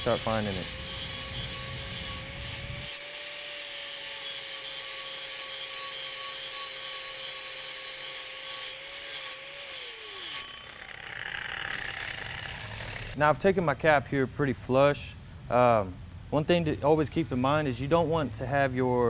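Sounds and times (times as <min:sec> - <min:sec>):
angle grinder on steel: 0:00.0 - 0:13.2.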